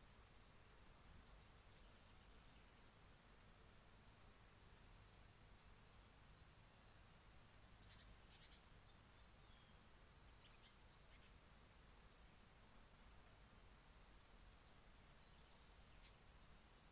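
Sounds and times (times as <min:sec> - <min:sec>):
small birds chirping: 0:00.0 - 0:16.9.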